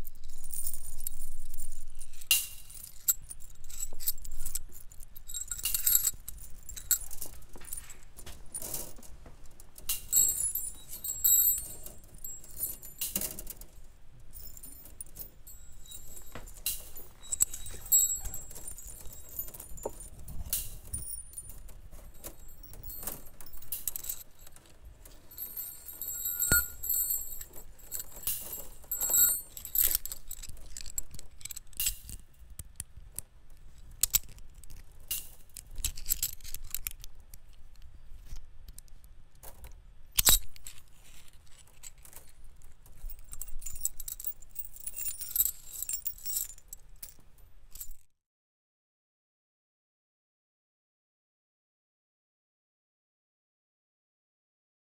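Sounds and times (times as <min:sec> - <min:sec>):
metal wires clinking: 0:00.0 - 0:32.3, 0:40.2 - 0:48.0.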